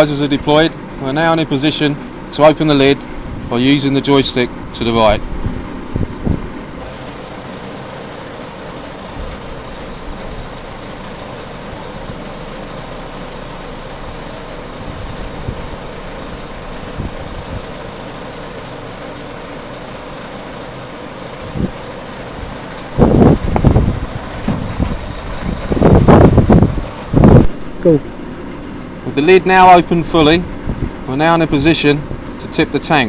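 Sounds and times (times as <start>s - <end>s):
truck engine and hydraulics running: 0.0s - 33.0s.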